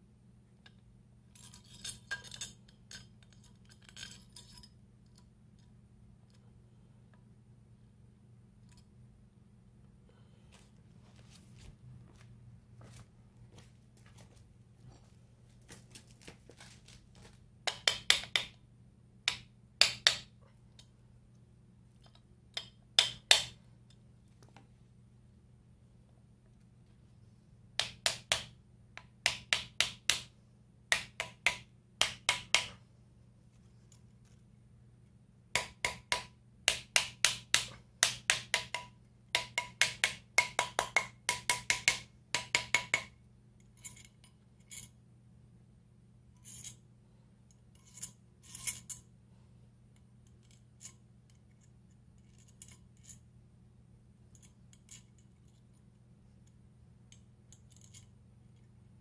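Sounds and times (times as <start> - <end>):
light metal clicks and clinks: 0.6 - 5.7
hammer tapping on metal: 17.7 - 18.6, 35.6 - 43.1.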